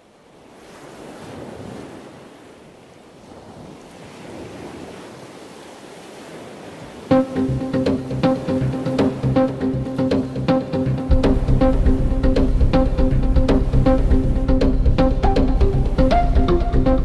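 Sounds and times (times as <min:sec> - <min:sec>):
waves washing in: 0:00.0 - 0:17.0
plucked chord of music: 0:07.1 - 0:17.0.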